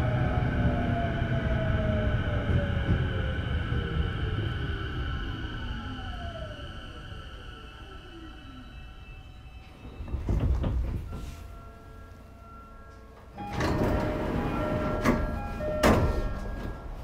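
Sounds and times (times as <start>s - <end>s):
sliding doors clattering: 9.8s - 11.5s, 13.3s - 17.0s
doors shutting knocks: 13.4s - 16.9s
train door thump: 13.5s - 16.9s.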